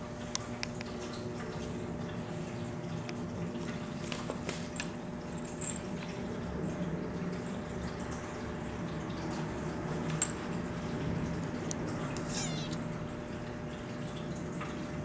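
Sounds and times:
room hum: 9.1 - 14.9.

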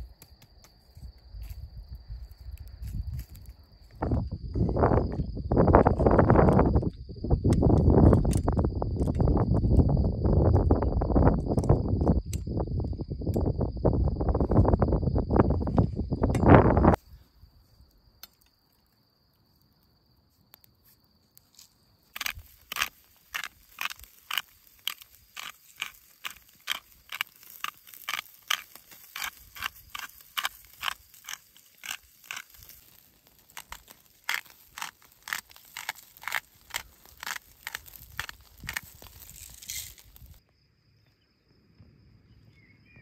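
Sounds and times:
charcoal embers crackling and popping: 0.0 - 17.0, 18.2 - 40.4.

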